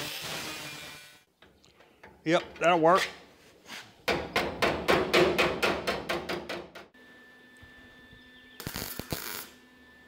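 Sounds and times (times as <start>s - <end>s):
crackling mig welding: 8.6s - 9.6s.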